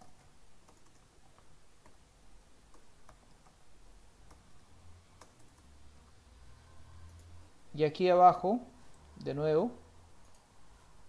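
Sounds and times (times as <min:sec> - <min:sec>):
computer keyboard typing clicks: 0:00.0 - 0:02.0, 0:05.2 - 0:05.7, 0:10.2 - 0:10.5.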